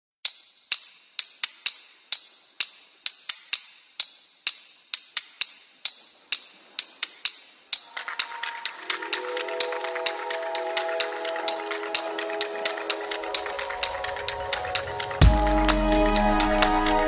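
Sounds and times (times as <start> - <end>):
sharp bright clicks: 0.2 - 15.2
sustained synth chord: 7.9 - 17.0.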